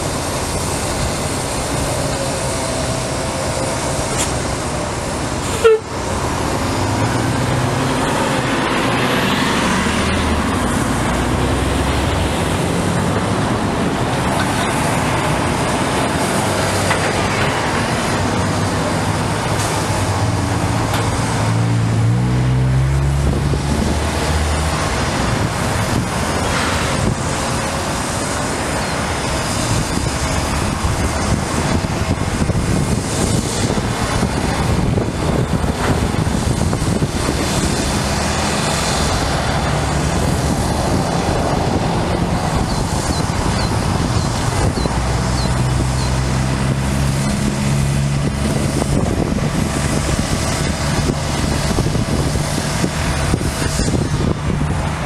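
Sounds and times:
excavator diesel engine working: 0:00.0 - 0:55.0.

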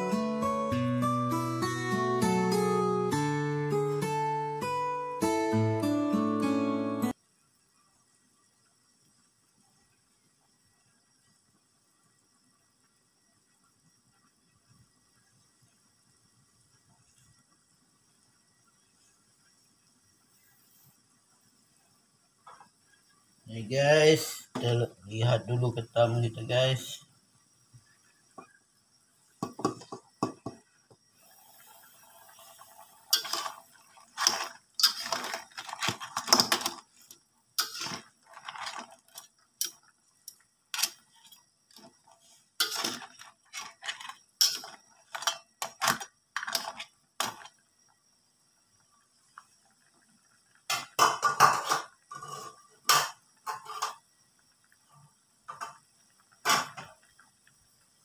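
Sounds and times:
metal spatula scraping wok: 0:33.1 - 0:36.8, 0:37.6 - 0:39.3, 0:40.8 - 0:41.4, 0:42.2 - 0:47.5, 0:52.1 - 0:52.6
metal pot lid clattering: 0:42.6 - 0:47.5.

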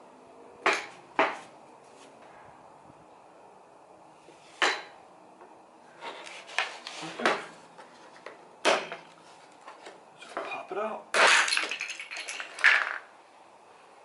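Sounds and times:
sharp plastic knocks: 0:00.6 - 0:01.4, 0:04.6 - 0:05.0, 0:08.6 - 0:09.1.

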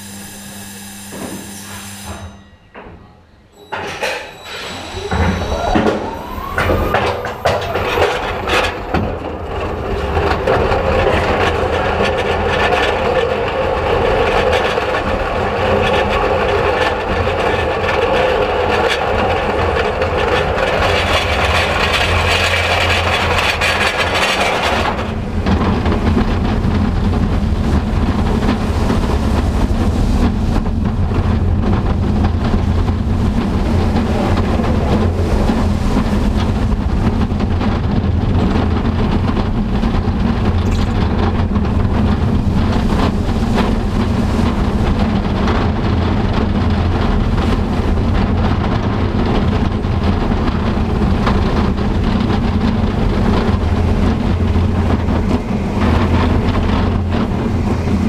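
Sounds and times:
wheels clattering on steel track: 0:02.2 - 0:58.0
lift hill mechanical whirr: 0:03.5 - 0:47.7.

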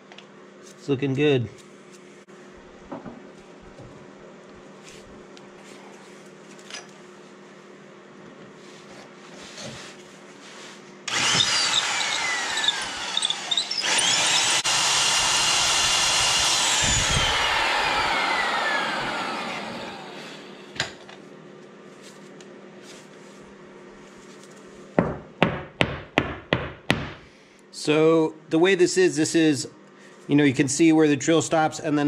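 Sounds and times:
electric drill boring into steel: 0:11.1 - 0:20.7.

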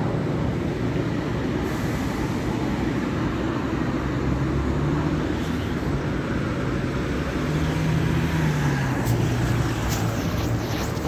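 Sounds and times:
rotating brush sweeping car: 0:08.6 - 0:11.0
rushing water spray: 0:08.7 - 0:11.0.

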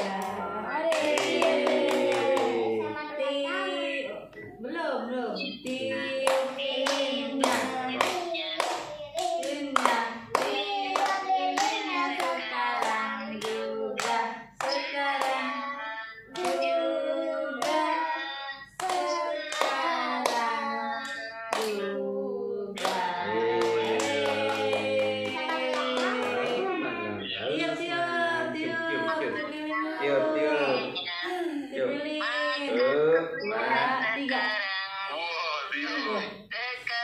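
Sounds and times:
people clapping in time: 0:00.0 - 0:02.7, 0:22.8 - 0:26.8
family singing together: 0:00.0 - 0:36.5.

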